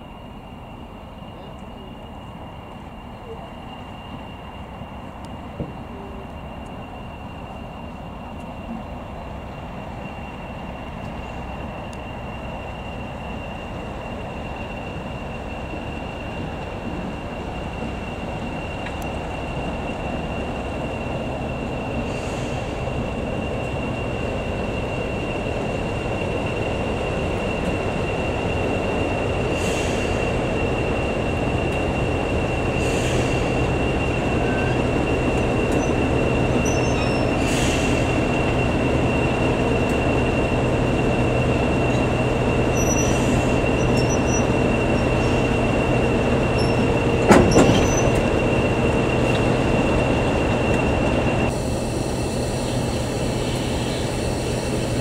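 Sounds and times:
diesel locomotive engine hum: 0:00.0 - 0:55.0
train wheels clunking over points: 0:41.8 - 0:51.4.

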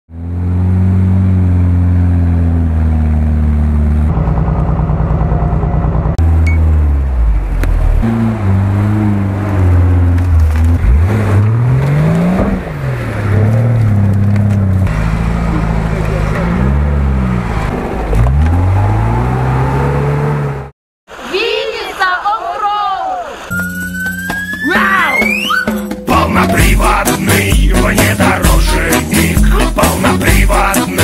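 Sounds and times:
off-road engine revving: 0:00.1 - 0:20.7, 0:26.1 - 0:31.0.

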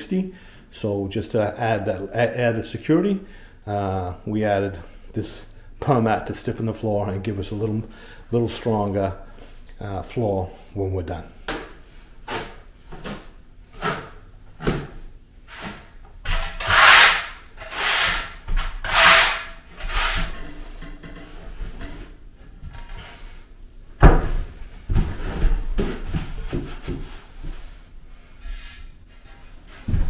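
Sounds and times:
trowel scraping mortar: 0:15.5 - 0:20.7.

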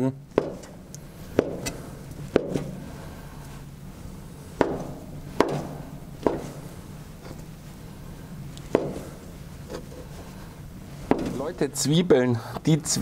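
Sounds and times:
low steady hum: 0:00.0 - 0:13.0
knife chopping on wooden board: 0:00.4 - 0:00.7, 0:01.4 - 0:02.7, 0:04.6 - 0:06.7, 0:08.7 - 0:09.2, 0:11.1 - 0:11.4.

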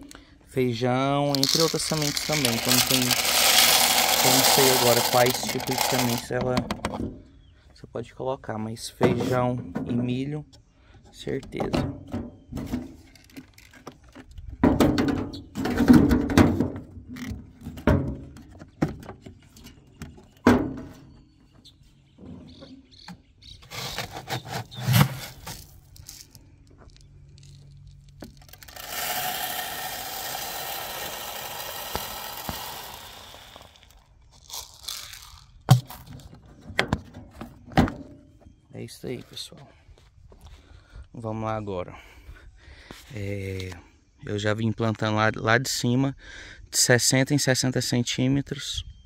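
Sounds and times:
hand planter knocking and scraping: 0:09.0 - 0:10.1, 0:11.4 - 0:25.7.

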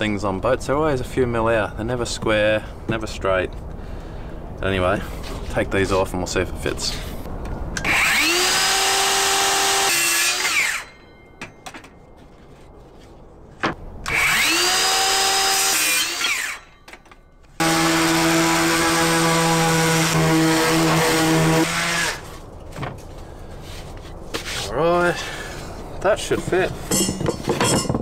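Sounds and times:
drill motor whining: 0:07.8 - 0:11.0.

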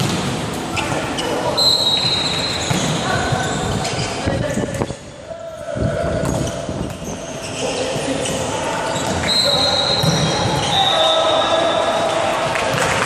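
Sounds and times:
shoe squeaks: 0:00.7 - 0:05.2, 0:06.2 - 0:11.6
players calling: 0:05.1 - 0:12.5.

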